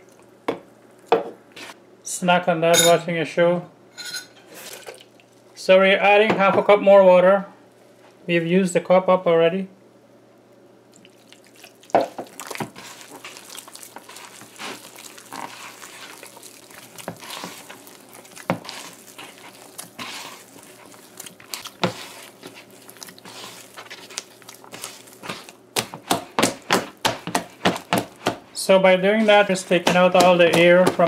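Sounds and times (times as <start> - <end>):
hand slapping wet batter: 11.9 - 28.4, 29.2 - 31.0.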